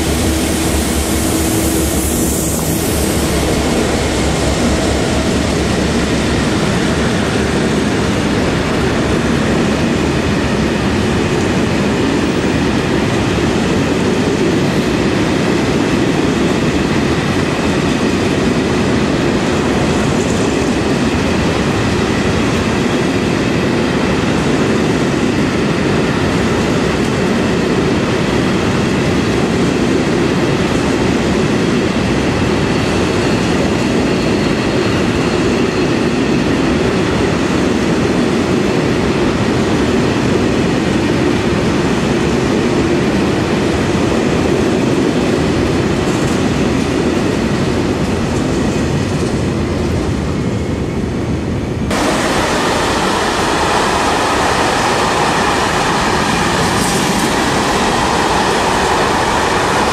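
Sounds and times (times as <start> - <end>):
freight train rumbling past: 0.0 - 59.9.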